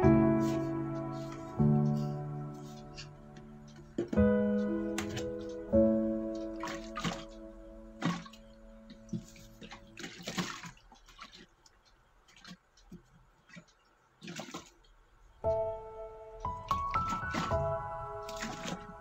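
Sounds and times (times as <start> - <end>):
sustained background music: 0.0 - 9.8, 15.4 - 19.0
water sloshing in plastic box: 6.3 - 15.0, 16.6 - 19.0.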